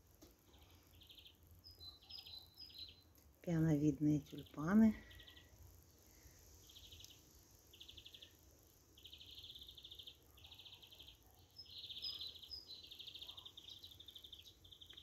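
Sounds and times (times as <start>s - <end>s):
thin high chirps: 0.9s - 3.1s.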